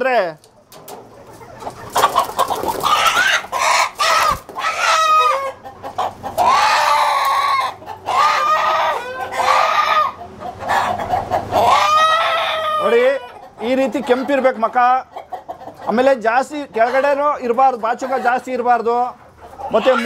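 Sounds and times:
rooster squawking loudly: 2.0s - 5.6s, 6.4s - 13.4s.

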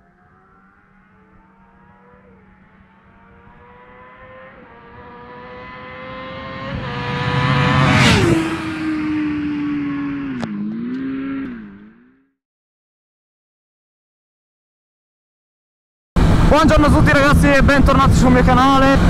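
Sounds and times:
motorcycle engine accelerating past: 0.0s - 12.4s.

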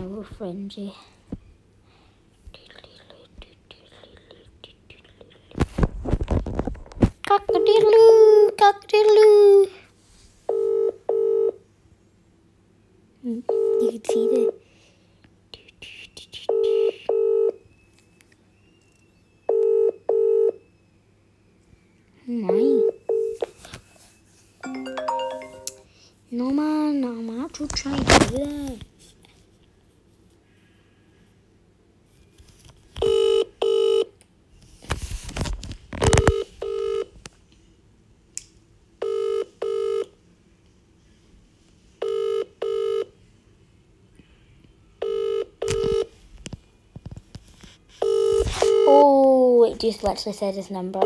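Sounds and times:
phone ringback tone: 10.5s - 11.6s, 16.5s - 17.6s, 19.5s - 20.6s, 22.5s - 23.4s, 24.6s - 25.9s, 33.0s - 34.1s, 36.1s - 37.1s, 39.0s - 40.1s, 42.0s - 43.1s, 45.0s - 46.1s, 48.0s - 49.0s
rustling handling noise: 34.6s - 36.5s.

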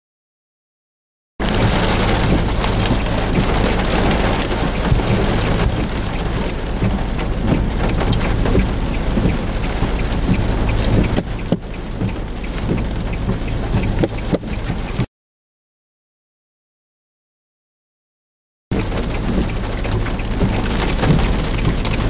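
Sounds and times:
heavy rain on a vehicle: 1.4s - 15.1s, 18.7s - 22.0s.

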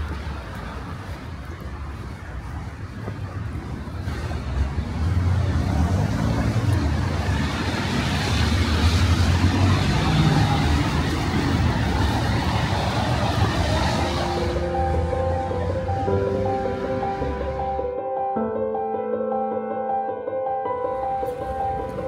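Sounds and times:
tyres hissing on wet asphalt: 0.0s - 15.0s
low traffic rumble: 0.0s - 18.0s.

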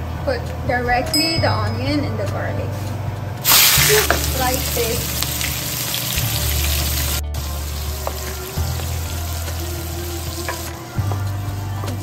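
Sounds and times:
onion sizzling in hot oil: 3.4s - 12.0s.

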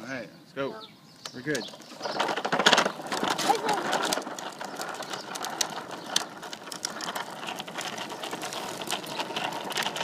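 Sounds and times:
plastic wheels rolling over asphalt: 1.3s - 10.0s.

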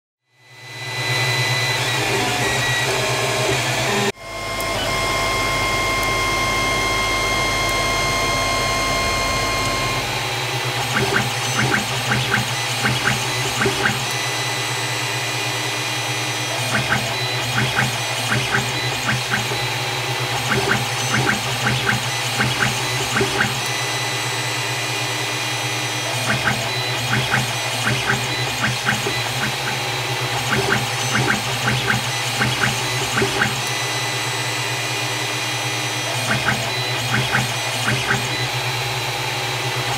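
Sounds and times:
printer fans and motors humming: 0.4s - 39.9s
stepper motor ticks and buzzes: 0.4s - 39.9s.

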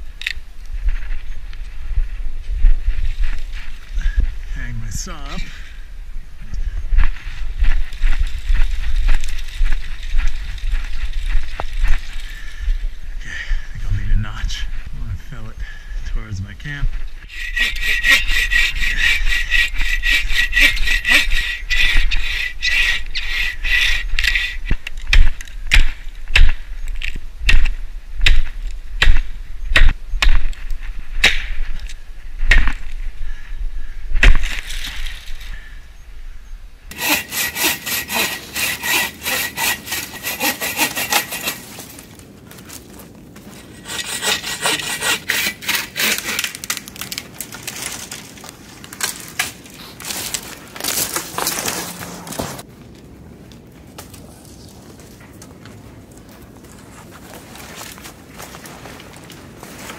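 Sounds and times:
bow saw cutting through wood: 17.2s - 24.8s, 36.9s - 41.9s, 43.6s - 46.8s.

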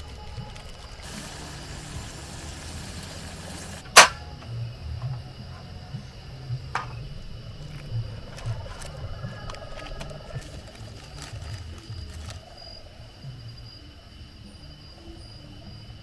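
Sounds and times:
water boiling in pot: 0.0s - 3.9s
sharp clack: 3.9s - 4.3s.

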